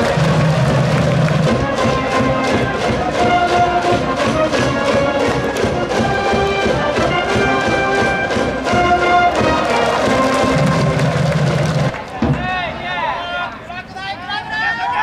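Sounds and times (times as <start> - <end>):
brass band playing: 0.0 - 12.0
steady drum beat: 0.0 - 12.6.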